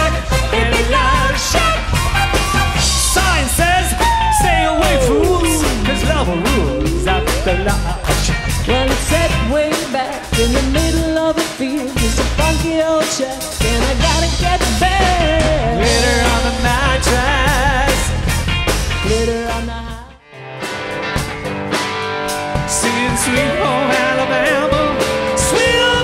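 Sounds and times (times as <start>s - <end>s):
electric bass: 0.0s - 11.3s, 11.9s - 26.0s
drums: 0.0s - 26.0s
electric guitar: 0.0s - 26.0s
singer holding wavering notes: 3.8s - 8.3s.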